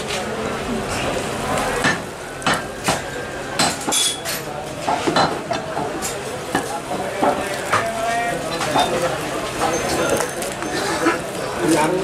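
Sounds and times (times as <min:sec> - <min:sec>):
cleaver chopping meat on wood: 0:01.8 - 0:03.9.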